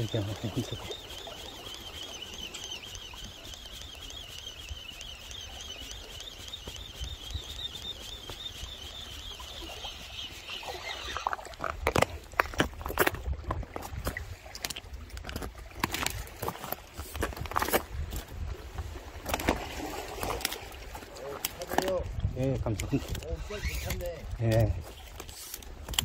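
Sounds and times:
fishing reel whirring: 0.0 - 12.4, 23.0 - 24.2.

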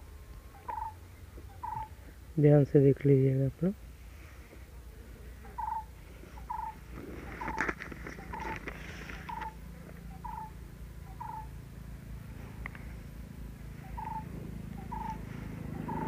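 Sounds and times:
paper pages rustling: 6.9 - 9.5.

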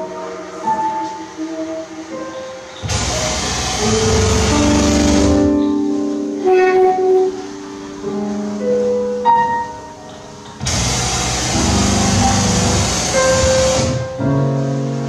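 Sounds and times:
sustained electronic tones: 0.0 - 8.5
dense wash of noise: 0.0 - 15.0.

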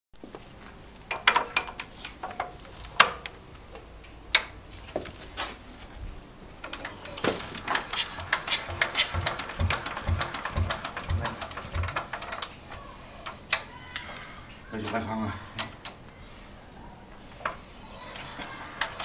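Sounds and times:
crank clicks and clanks: 1.1 - 3.4, 4.3 - 4.6, 6.6 - 13.7, 18.2 - 19.0
diesel engine clattering: 7.7 - 12.4.

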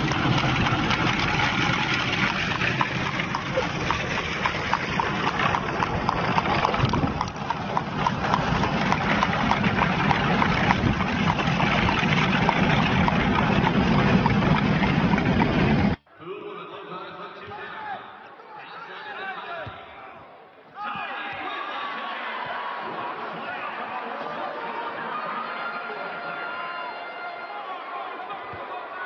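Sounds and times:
horse hooves clip-clopping on pavement: 0.0 - 16.0.

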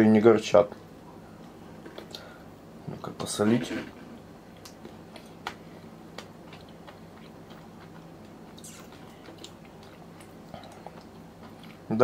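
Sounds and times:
small clicks of chewing: 4.5 - 11.9.

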